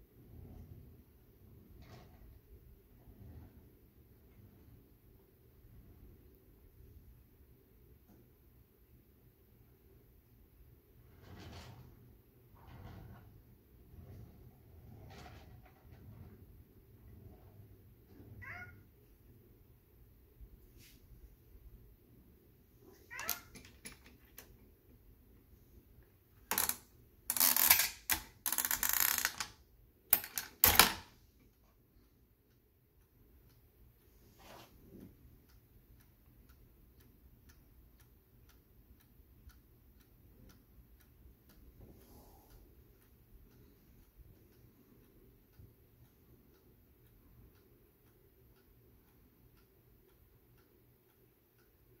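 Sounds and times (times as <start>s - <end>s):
parking meter timer ticking: 31.2s - 52.0s.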